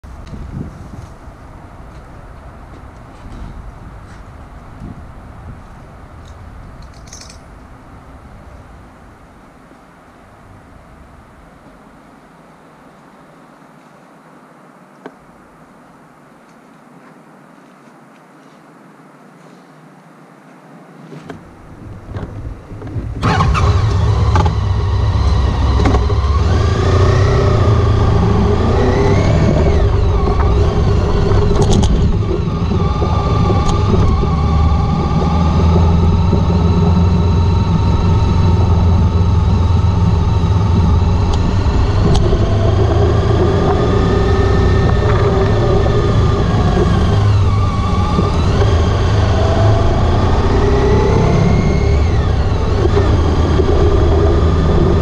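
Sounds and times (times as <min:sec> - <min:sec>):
motorcycle engine running: 0:21.8 - 0:55.0.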